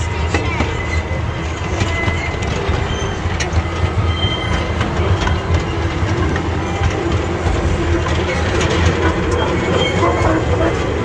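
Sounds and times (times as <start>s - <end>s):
train wheels rumbling on rails: 0.0s - 11.0s
faint wheel squeals: 0.6s - 6.1s.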